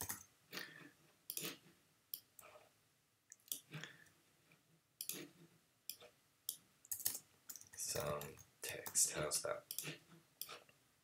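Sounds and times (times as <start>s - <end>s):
faint mouse and keyboard clicks: 5.9s - 10.8s.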